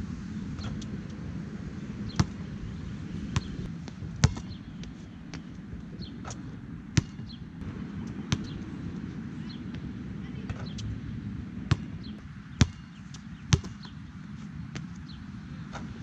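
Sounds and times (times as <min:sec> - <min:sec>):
steady low rumble: 0:00.0 - 0:16.0
basketball bouncing on hard court: 0:04.2 - 0:04.6, 0:07.0 - 0:07.3, 0:11.7 - 0:11.9, 0:12.6 - 0:12.9, 0:13.5 - 0:13.9.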